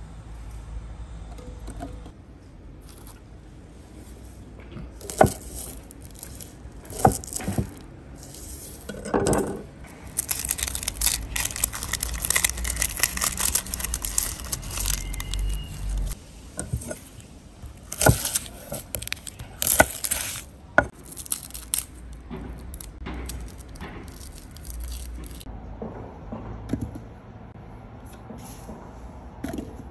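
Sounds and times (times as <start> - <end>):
shallot skins crackling and tearing: 5.0 - 8.5, 9.9 - 16.2, 17.8 - 25.5.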